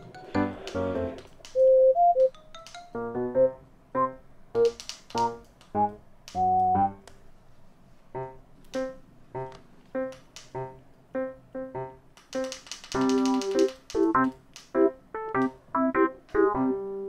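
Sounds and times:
bouncy keyboard tune: 0:00.0 - 0:07.0, 0:08.2 - 0:17.0.

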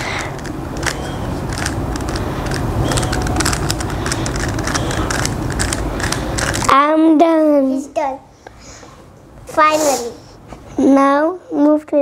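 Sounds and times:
puzzle cube clicking: 0:00.1 - 0:06.7.

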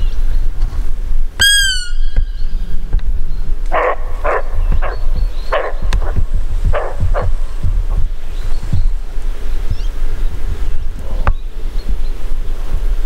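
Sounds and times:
wind rumbling on microphone: 0:00.0 - 0:13.0
high whistled squeak: 0:01.4 - 0:02.4
deer alarm barks: 0:03.7 - 0:07.6.

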